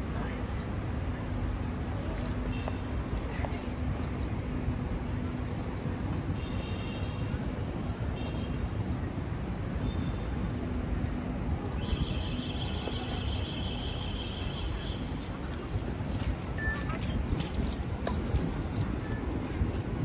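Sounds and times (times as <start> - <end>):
hubbub of people's voices: 0.0 - 6.4, 10.5 - 20.0.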